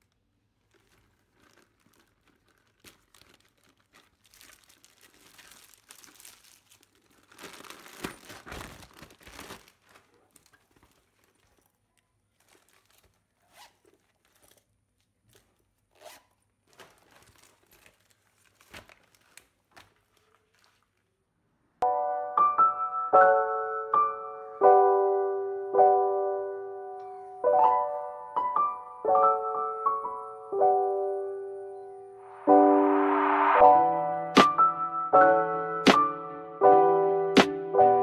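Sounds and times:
bag and plastic wrapping rustling: 0.0 - 21.2.

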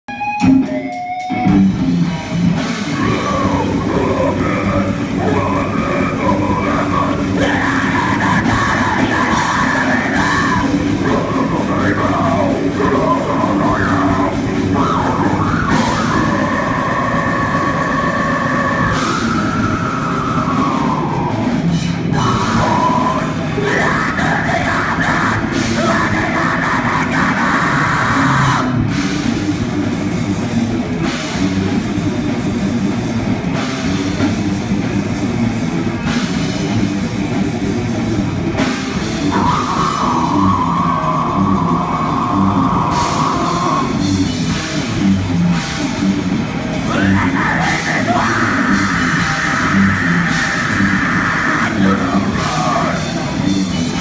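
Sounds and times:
electric guitar: 0.0 - 54.0
drum kit: 0.1 - 54.0
person yelling into a microphone: 3.0 - 21.5, 22.2 - 28.8, 39.2 - 44.0, 46.9 - 53.3.

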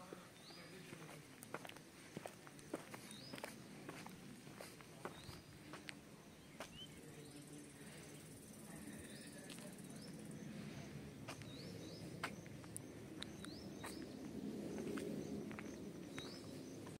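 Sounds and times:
low rumble: 8.3 - 17.0.

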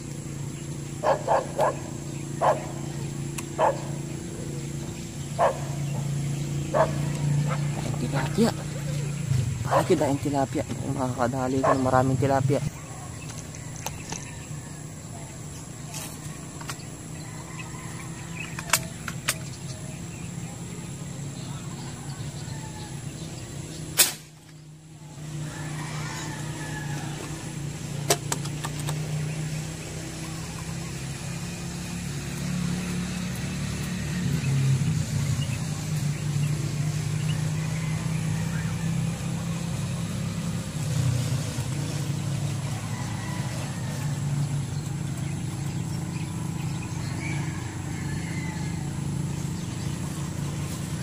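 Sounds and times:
dog barking: 1.0 - 2.8, 3.6 - 4.0, 5.4 - 5.8, 6.7 - 7.7, 9.6 - 10.0, 11.6 - 11.9
sharp airgun shot: 23.9 - 24.4.

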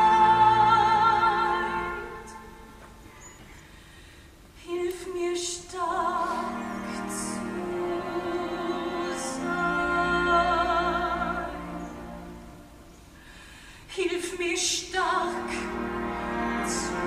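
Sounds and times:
soprano singing with vibrato: 0.0 - 3.0, 4.6 - 12.7, 13.9 - 15.8
soft orchestral accompaniment: 0.0 - 17.0.

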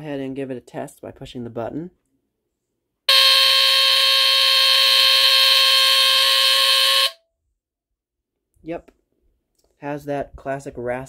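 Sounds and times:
smoke alarm raspy tone: 3.1 - 7.2.

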